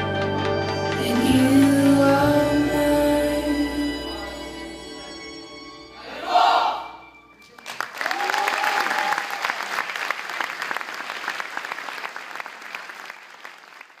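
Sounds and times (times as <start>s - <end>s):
audience applauding: 7.4s - 14.0s.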